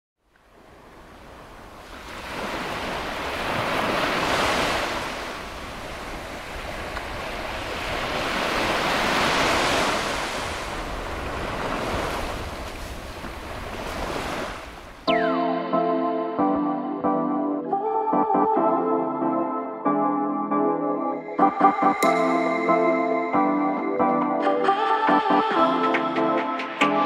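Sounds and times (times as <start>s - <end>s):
waves breaking on a beach: 0.3s - 15.1s.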